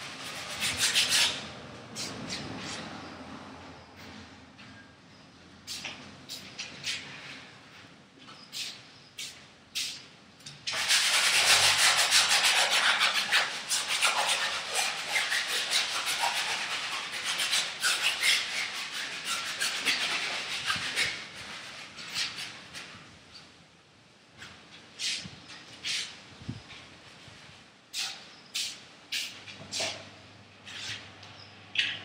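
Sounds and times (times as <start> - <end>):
tool rubbing paint on canvas: 0.0 - 2.8, 10.7 - 22.9.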